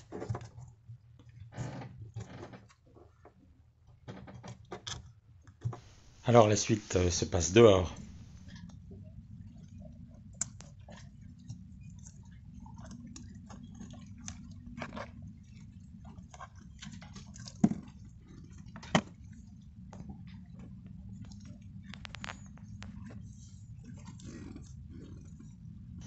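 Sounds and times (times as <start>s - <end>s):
steady low hum: 5.8s - 16.8s.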